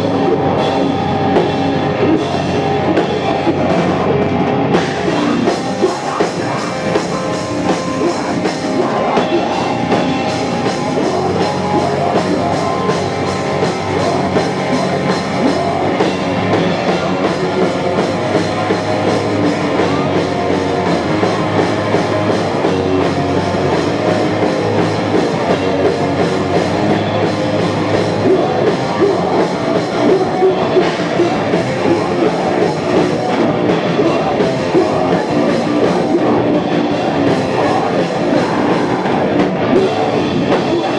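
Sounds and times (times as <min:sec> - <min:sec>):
distorted guitar: 0:00.0 - 0:40.9
drum kit: 0:00.0 - 0:40.9
electric bass: 0:00.0 - 0:40.9.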